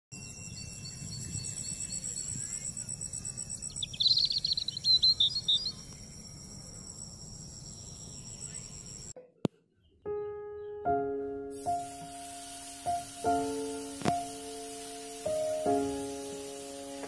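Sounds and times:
bird chirping: 0.2 - 9.2, 9.8 - 17.0
insects trilling: 0.2 - 9.2, 11.6 - 17.0.

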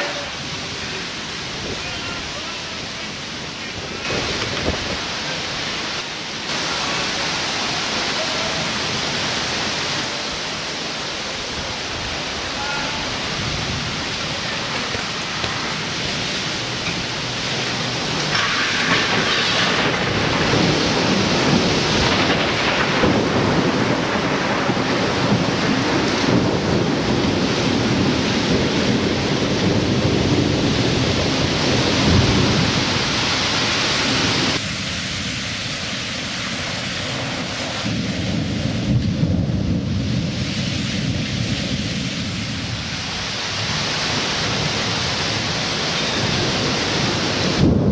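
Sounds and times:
strong wind: 0.0 - 47.9
torrential rain: 0.0 - 47.9.

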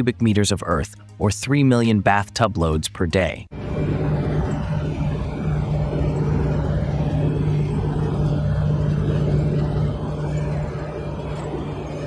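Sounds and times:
excavator mechanical drone: 3.5 - 12.0.

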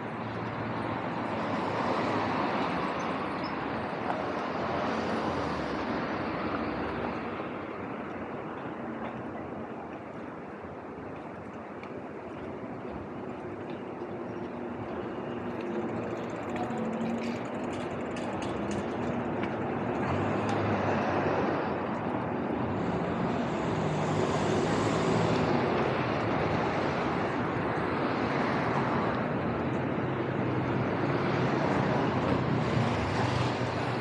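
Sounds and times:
vehicle engine and tyres: 0.0 - 34.0.

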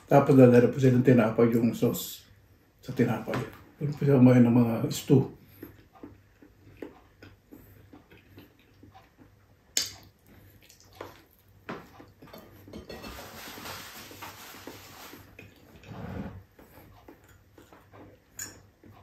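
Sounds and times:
man chewing a banana: 5.3 - 12.8, 14.6 - 19.0
mouth clicks: 9.7 - 10.8
paper napkins rustling: 13.0 - 15.4.

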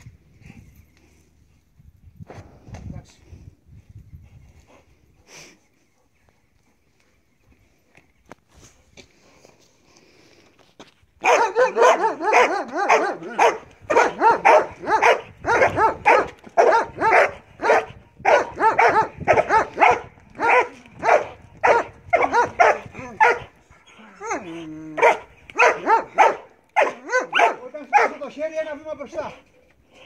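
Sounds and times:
dog barking rapidly: 11.2 - 23.5, 25.0 - 28.2.

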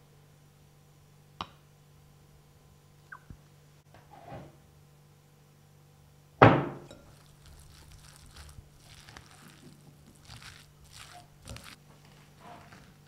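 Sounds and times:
chopsticks stirring sticky rice: 6.9 - 13.0.

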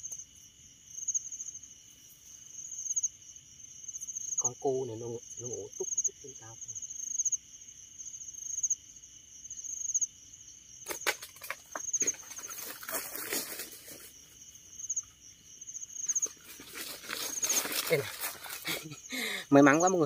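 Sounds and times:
night insects trilling: 0.0 - 20.0
leaves rustling and crackling: 10.9 - 14.4, 16.0 - 19.0.

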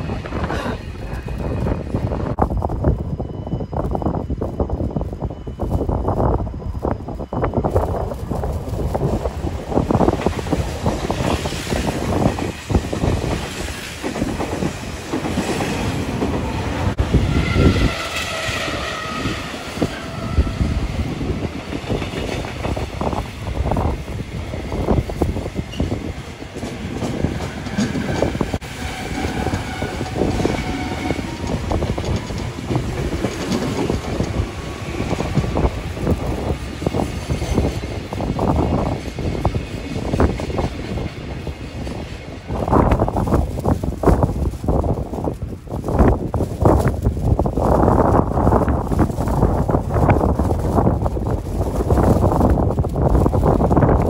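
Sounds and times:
train wheels rumbling: 0.0 - 54.0.

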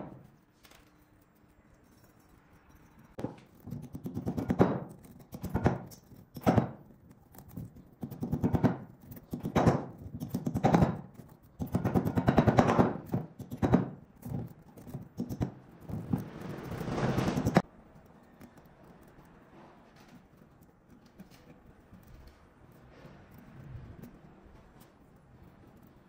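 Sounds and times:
metal wire clinking in steel tube: 0.2 - 3.2.

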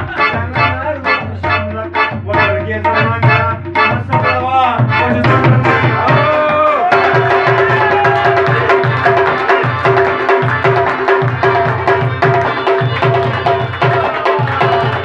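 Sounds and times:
tabla drumming: 0.0 - 15.0.

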